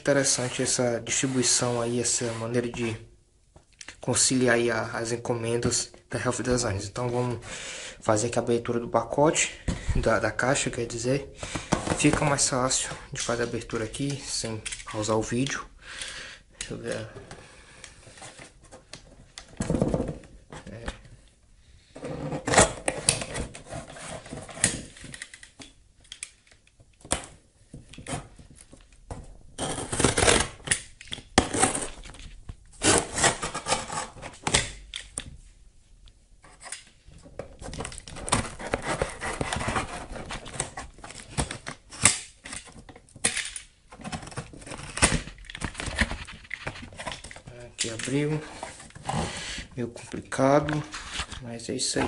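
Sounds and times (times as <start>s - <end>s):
cardboard box tearing: 29.6s - 30.6s.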